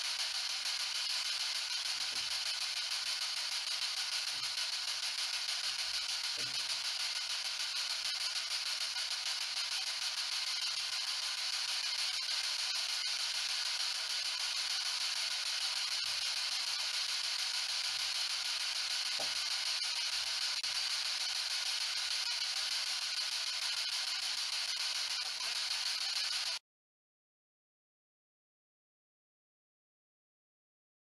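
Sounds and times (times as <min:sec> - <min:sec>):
radio static hiss: 0:00.6 - 0:16.4, 0:17.7 - 0:22.5.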